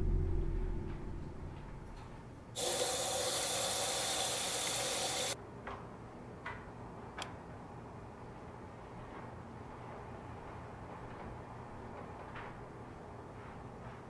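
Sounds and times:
faucet water running into basin: 0:02.6 - 0:05.4.

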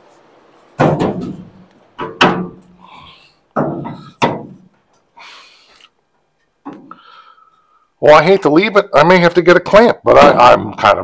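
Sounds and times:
metal crossmember thunking on car body: 0:00.8 - 0:02.8, 0:03.6 - 0:04.7.

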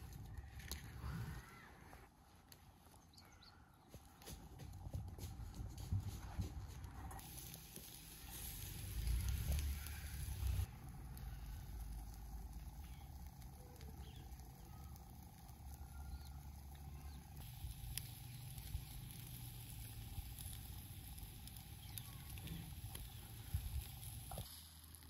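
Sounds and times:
embers crackling: 0:00.0 - 0:03.5, 0:06.2 - 0:25.0
low steady rumble: 0:05.3 - 0:25.0.

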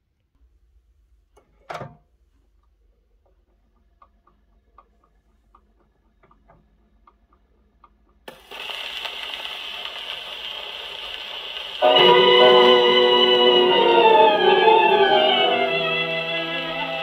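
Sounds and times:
record surface ticks and crackle: 0:02.6 - 0:11.8
music from record: 0:11.8 - 0:17.0.

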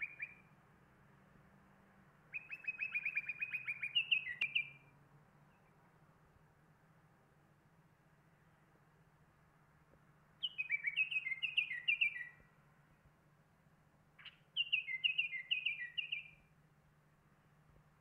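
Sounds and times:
songbird singing whistled notes: 0:00.0 - 0:00.6, 0:02.3 - 0:05.8, 0:10.4 - 0:12.6, 0:14.2 - 0:16.5.

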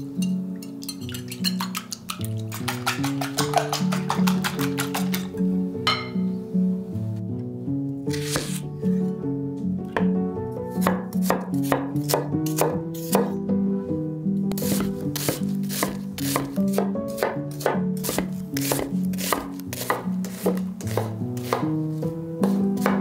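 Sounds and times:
soft background music: 0:00.0 - 0:23.0
knife chopping on wooden board: 0:10.8 - 0:13.4, 0:14.6 - 0:21.7, 0:22.4 - 0:23.0.

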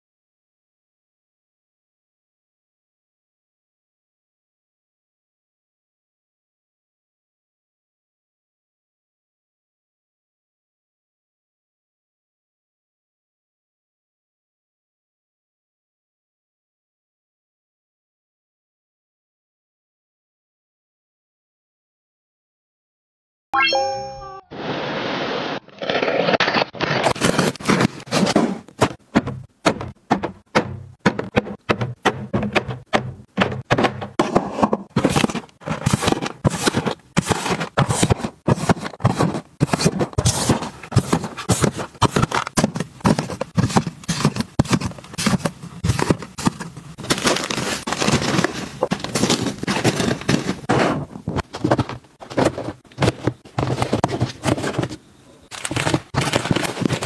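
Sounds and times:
boxes and packets being handled: 0:25.8 - 0:57.0
plastic packets crinkling: 0:44.6 - 0:50.6, 0:55.5 - 0:57.0.

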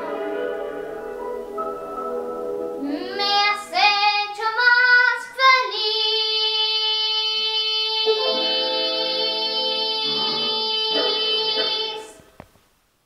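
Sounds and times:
keyboard chords: 0:00.0 - 0:03.4, 0:08.1 - 0:12.2
girl singing a long note: 0:02.8 - 0:12.2.

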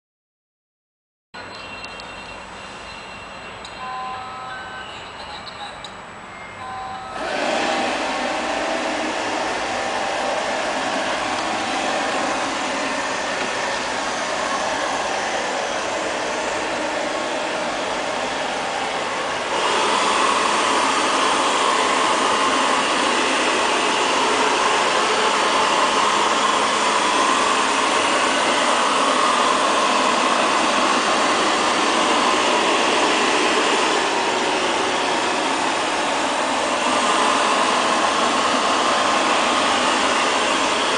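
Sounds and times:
robot vacuum cleaner running: 0:06.6 - 0:40.9.

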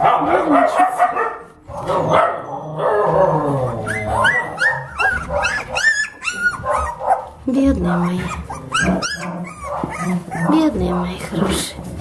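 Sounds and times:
puppies yelping: 0:00.0 - 0:11.1
puppies whimpering: 0:02.0 - 0:11.1.

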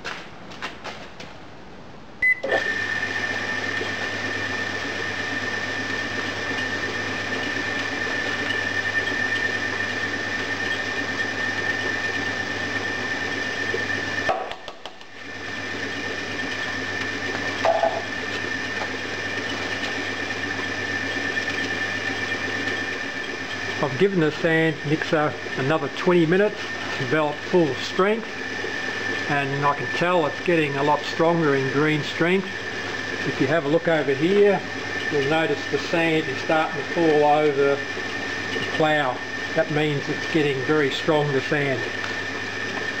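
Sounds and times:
short controller beep: 0:02.2 - 0:02.6
sand mixer motor hum and whine: 0:02.2 - 0:43.0.

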